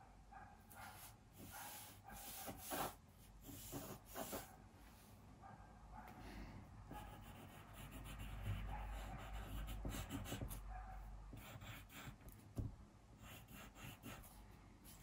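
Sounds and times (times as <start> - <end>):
pencil scratching on paper: 0.8 - 4.6, 6.9 - 10.7, 11.3 - 12.4, 13.2 - 15.0.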